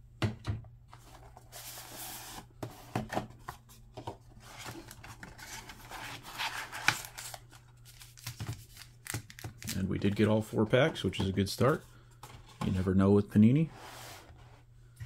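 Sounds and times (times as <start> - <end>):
cardboard sliding and rubbing: 1.3 - 3.0, 13.7 - 14.7.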